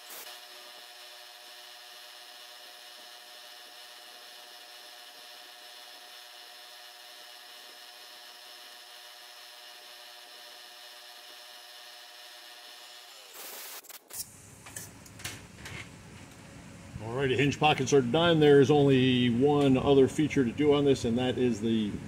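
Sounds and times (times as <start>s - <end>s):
milling machine spindle whine: 0.0s - 13.8s.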